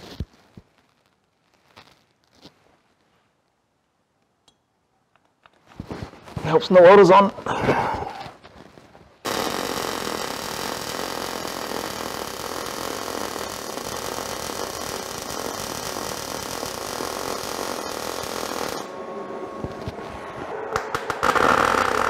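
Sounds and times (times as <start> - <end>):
welder arc crackling: 8.7 - 18.9, 20.8 - 22.0.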